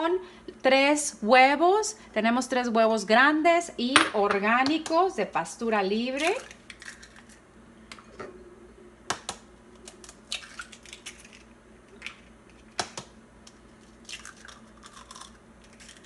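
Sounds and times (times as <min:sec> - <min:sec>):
eggshell crackling apart: 0:09.8 - 0:16.0.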